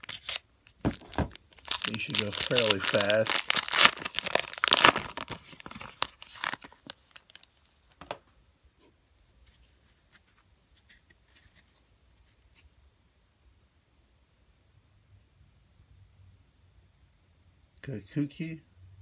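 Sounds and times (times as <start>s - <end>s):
foil wrapper crinkling and tearing: 0.0s - 7.6s
faint card rustles: 8.8s - 12.7s.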